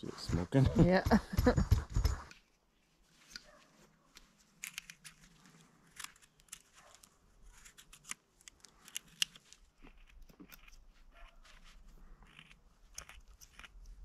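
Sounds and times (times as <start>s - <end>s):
knife scraping wood: 4.6s - 14.0s.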